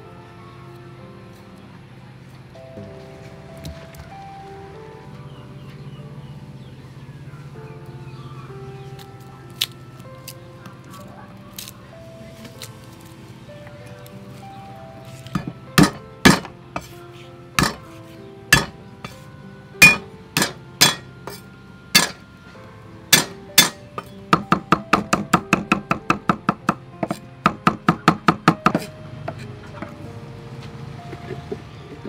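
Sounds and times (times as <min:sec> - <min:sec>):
cleaver chopping on wooden block: 0:15.3 - 0:16.9, 0:17.6 - 0:17.8, 0:18.6 - 0:18.8, 0:19.8 - 0:21.4, 0:22.0 - 0:22.2, 0:23.2 - 0:23.8, 0:24.4 - 0:29.4.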